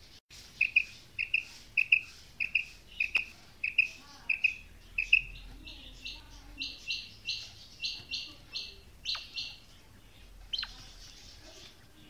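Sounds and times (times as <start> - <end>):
quail calling: 0.6 - 5.4.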